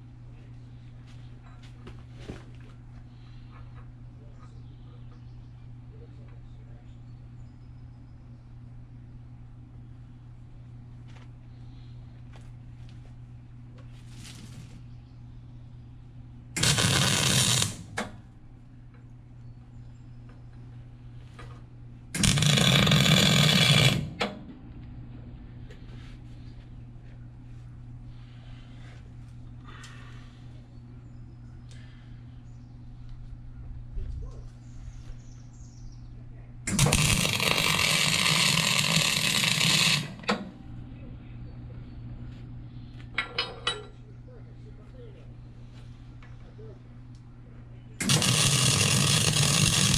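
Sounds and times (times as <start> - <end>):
steady low hum: 0.0 - 49.9
welding arc buzzing: 16.5 - 18.3, 22.1 - 24.6, 36.7 - 40.6, 48.0 - 49.9.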